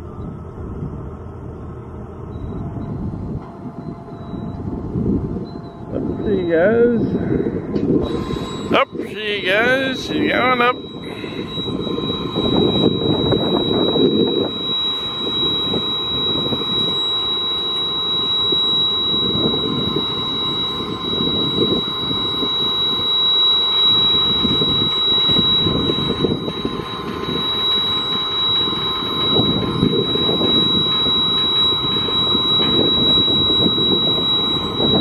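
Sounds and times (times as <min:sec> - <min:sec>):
wind gusting on microphone: 0:00.0 - 0:35.0.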